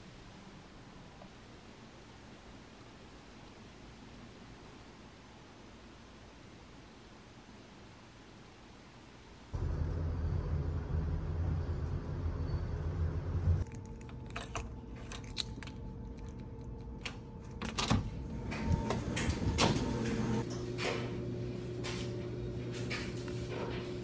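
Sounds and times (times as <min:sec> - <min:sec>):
low rumble: 0:09.6 - 0:17.6.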